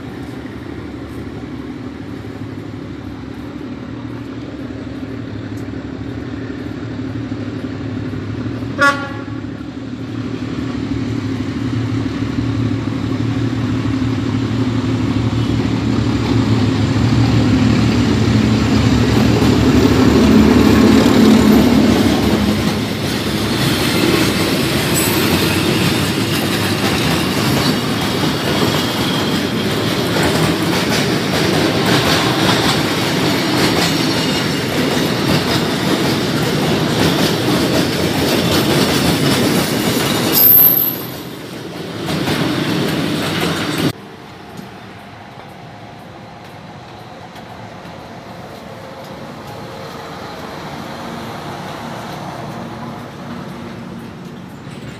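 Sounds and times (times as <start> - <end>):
locomotive engine droning: 0.0 - 41.4
train wheels clacking over rail joints: 15.2 - 44.8.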